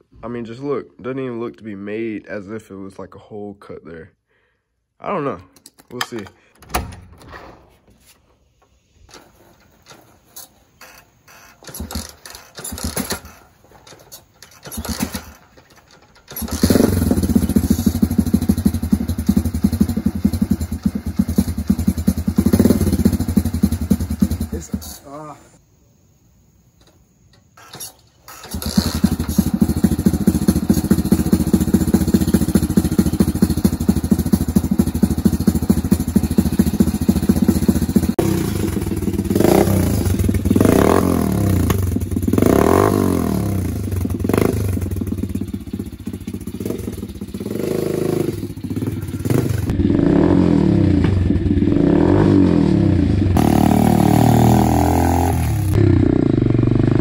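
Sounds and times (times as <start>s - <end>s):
motorbike engine starting: 9.0s - 25.3s, 27.4s - 57.0s
motorbike engine idling: 11.7s - 24.7s, 28.3s - 49.9s
motorbike pulling away through gears: 11.7s - 24.7s, 27.6s - 57.0s.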